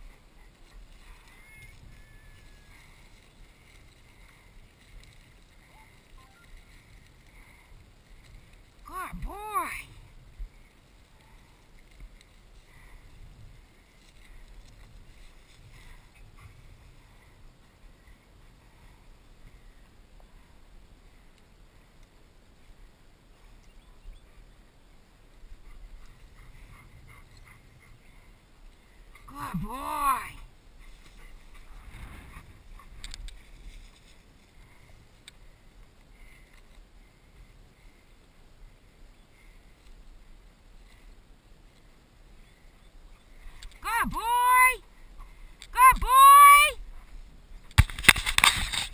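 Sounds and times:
rustling of tall grass: 0.0 - 43.8, 44.8 - 45.8, 46.8 - 48.9
wind on microphone: 25.3 - 35.8
wind rumble: 30.3 - 43.8
camera handling noise: 47.7 - 48.9.

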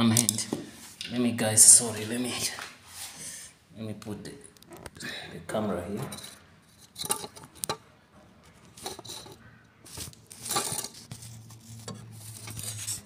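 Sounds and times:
rubbing and scraping: 6.0 - 7.8, 8.4 - 13.0.

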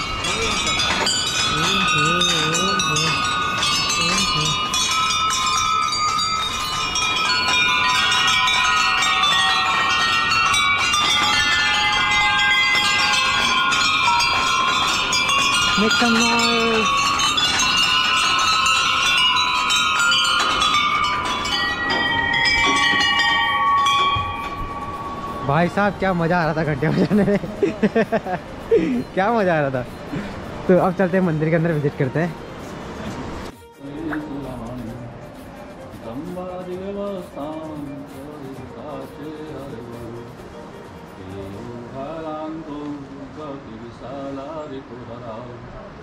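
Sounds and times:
temple bells ringing: 0.0 - 33.2.

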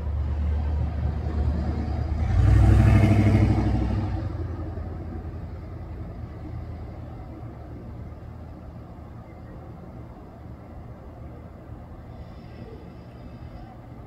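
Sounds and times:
vehicle passing by: 0.0 - 7.4.

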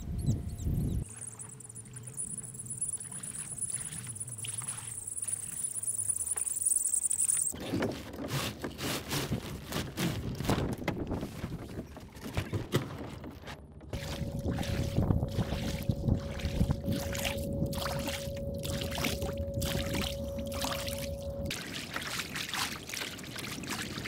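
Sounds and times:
sail flapping in wind: 7.6 - 20.7
faint low hum: 14.0 - 21.5
high-pitched whine: 14.0 - 21.5.

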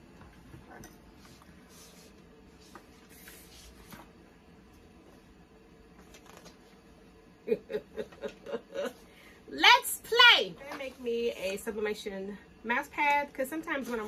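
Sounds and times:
paper pages rustling: 1.2 - 4.1, 6.0 - 6.7.

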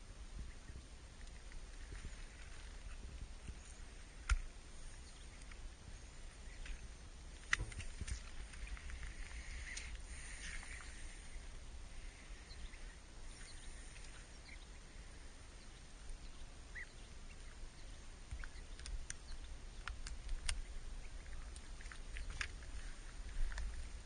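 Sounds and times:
steady low rumble: 0.0 - 24.0
faint chirp: 3.4 - 19.9
light clicks and ticks: 18.2 - 23.8.

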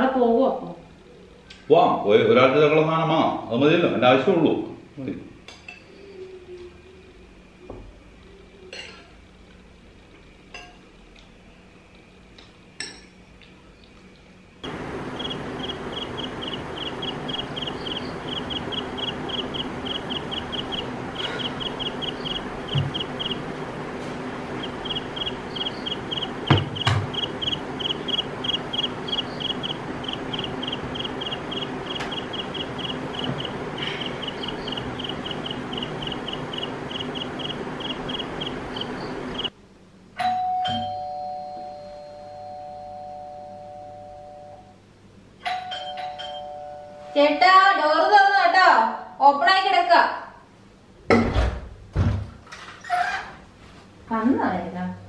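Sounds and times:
low hum: 14.6 - 39.5
steady high chirping: 14.6 - 39.6
electronic two-tone doorbell chime: 40.2 - 44.6.

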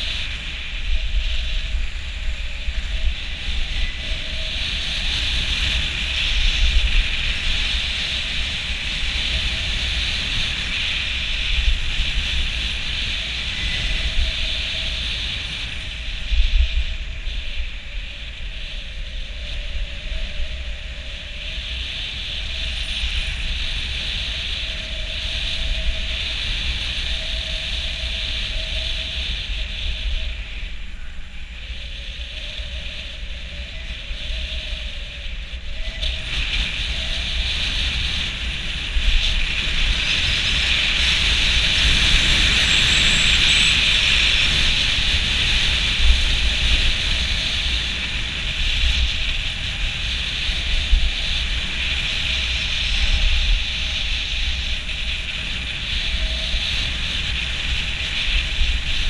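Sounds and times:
wind buffeting a camera: 0.0 - 59.0
faint wavering whistle: 41.8 - 44.7.

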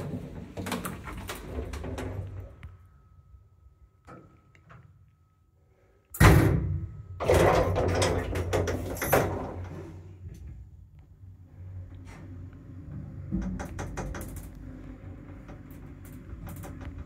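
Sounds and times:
rumbling and rattling clicks: 0.0 - 2.8, 11.9 - 17.0
faint steady tone: 2.1 - 7.2.

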